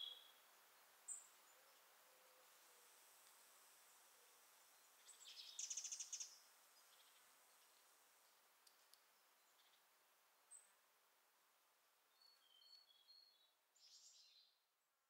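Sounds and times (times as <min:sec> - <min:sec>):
faint bird chirps: 0:00.0 - 0:00.4, 0:04.6 - 0:08.4, 0:12.1 - 0:14.6.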